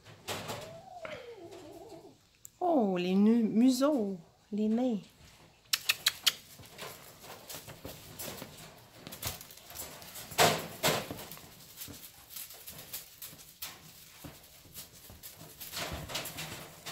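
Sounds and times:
kittens tapping and rustling: 0:04.8 - 0:16.9.

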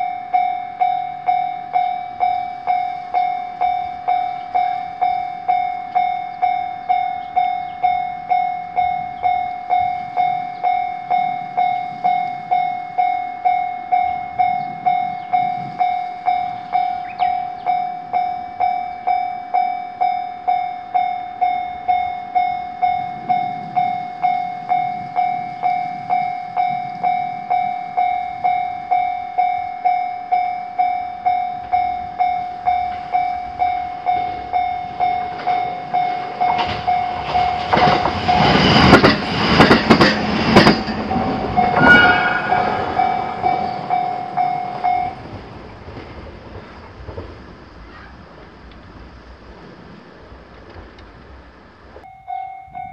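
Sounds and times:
level-crossing warning bell: 0:00.0 - 0:48.3, 0:51.8 - 0:52.9
train rumbling past: 0:00.0 - 0:52.9
wheel clatter over rail joints: 0:32.7 - 0:52.1.

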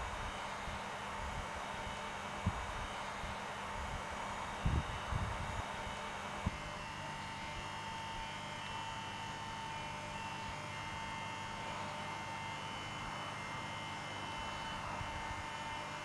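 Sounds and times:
electrical hum with whine: 0:00.0 - 0:16.0.

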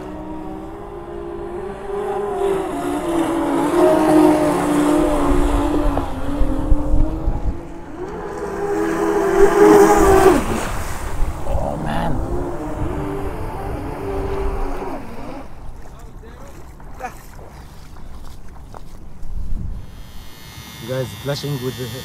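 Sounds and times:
electric motors whining: 0:00.0 - 0:10.6, 0:11.3 - 0:15.6, 0:19.8 - 0:22.0.

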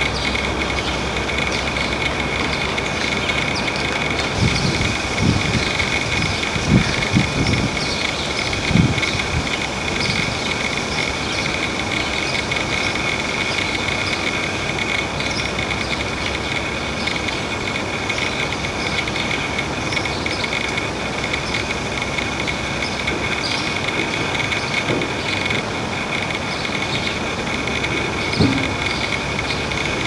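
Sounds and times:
synthesizer drone: 0:20.2 - 0:30.0.

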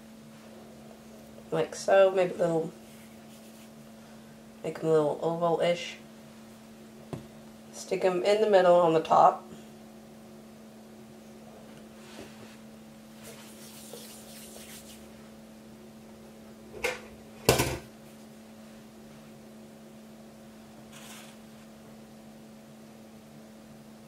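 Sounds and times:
steady low hum: 0:00.0 - 0:24.0
knocks on kitchen worktop: 0:17.5 - 0:17.9.

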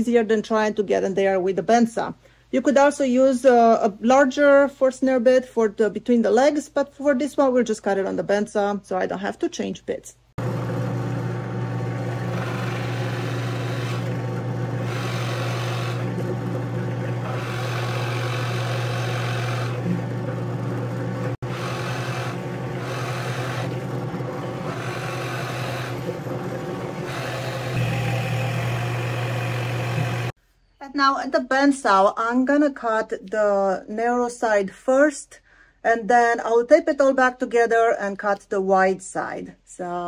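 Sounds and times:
drill bit boring into wood: 0:10.4 - 0:30.3
drill press motor running: 0:10.4 - 0:30.4.

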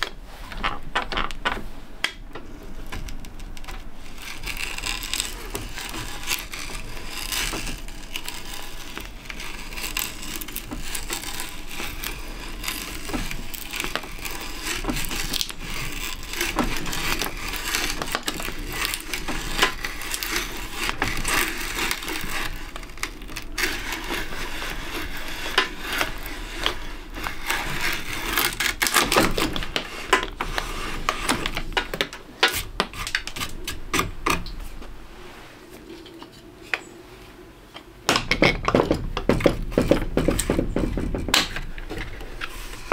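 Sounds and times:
drill bit boring through wood: 0:04.0 - 0:30.8.

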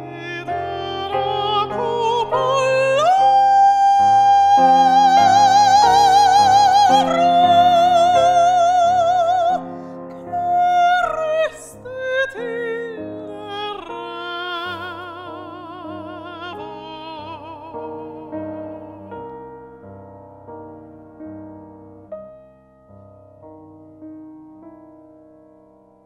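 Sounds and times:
woman singing with vibrato: 0:00.0 - 0:19.3
piano accompaniment: 0:00.0 - 0:26.0.

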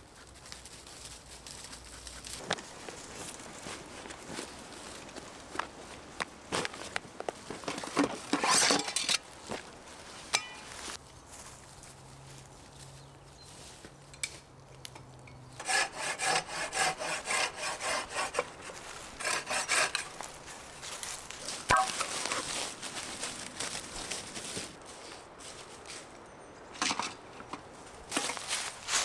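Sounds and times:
saw cutting wood: 0:15.6 - 0:20.3.

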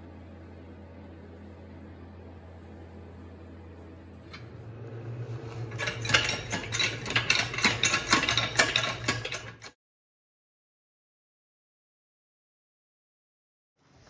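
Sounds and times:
metal nails clicking and creaking: 0:05.7 - 0:09.7.

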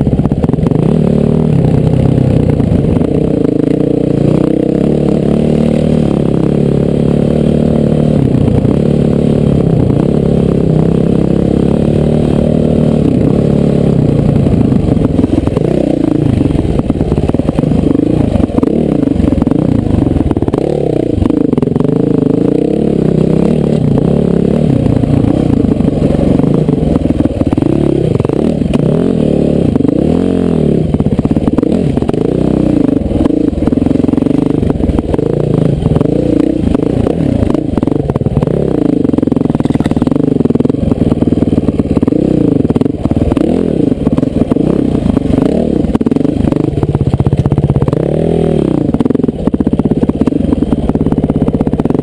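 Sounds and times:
dirt bike engine revving: 0:00.0 - 0:52.0.

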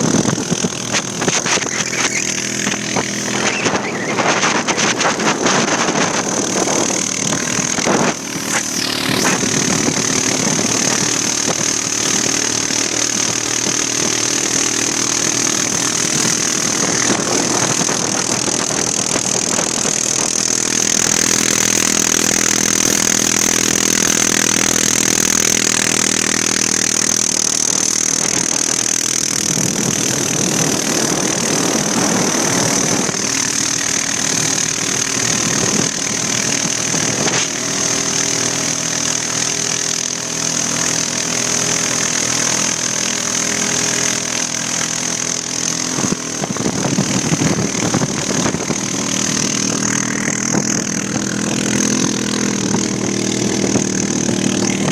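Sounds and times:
wind on microphone: 0:00.0 - 0:12.3, 0:15.6 - 0:23.2, 0:28.1 - 0:37.7, 0:45.9 - 0:54.9
high whine: 0:00.0 - 0:13.8, 0:45.9 - 0:54.9
atv engine running: 0:00.0 - 0:54.9.

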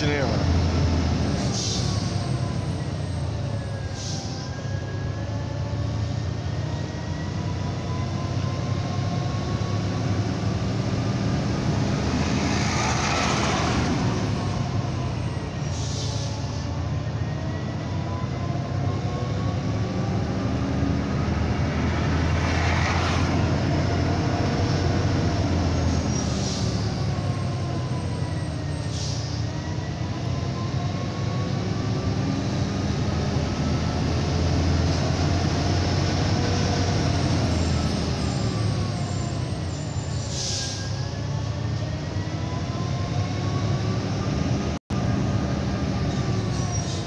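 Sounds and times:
diesel truck engine: 0:00.0 - 0:47.0
air brake hisses: 0:01.5 - 0:02.0, 0:15.6 - 0:16.4, 0:26.2 - 0:26.8, 0:28.8 - 0:29.4, 0:39.6 - 0:41.0.

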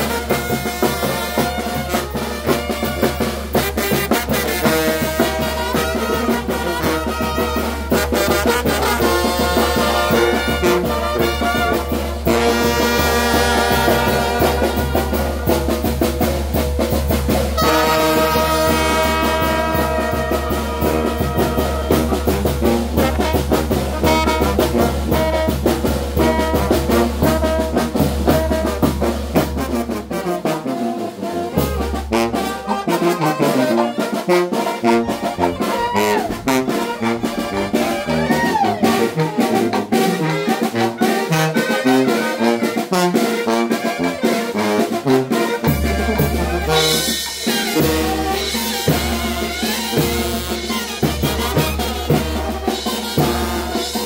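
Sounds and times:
bass drum and cymbals: 0:00.0 - 0:54.0
brass band playing: 0:00.0 - 0:54.0.

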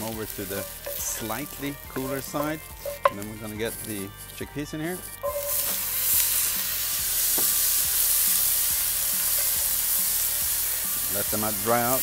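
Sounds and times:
chickpeas sizzling in oil: 0:00.0 - 0:12.0
wooden spoon knocking pan: 0:00.5 - 0:03.3, 0:05.2 - 0:05.8.

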